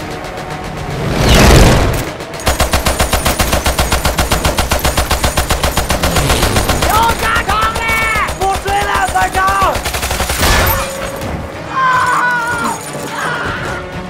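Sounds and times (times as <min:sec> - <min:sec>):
machine gun automatic fire: 0:01.4 - 0:11.1.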